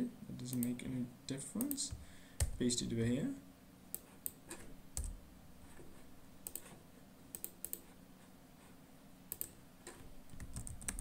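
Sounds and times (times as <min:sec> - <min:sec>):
faint steady hum: 0:00.0 - 0:11.0
computer keys clicking: 0:03.9 - 0:05.2, 0:06.4 - 0:06.7, 0:07.3 - 0:07.9, 0:09.3 - 0:11.0.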